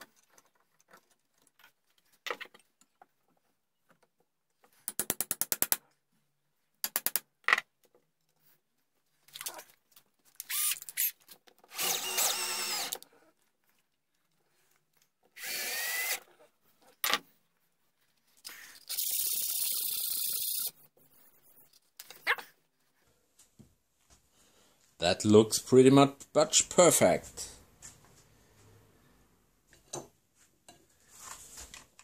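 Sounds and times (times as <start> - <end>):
power drill whining: 10.4 - 11.1, 11.7 - 13.0, 15.4 - 16.3.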